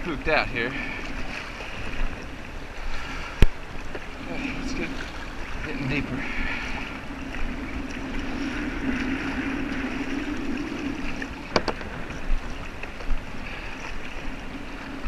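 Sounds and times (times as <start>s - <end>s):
water splashing against kayak hull: 0.0s - 15.0s
sharp knocks: 11.5s - 11.9s.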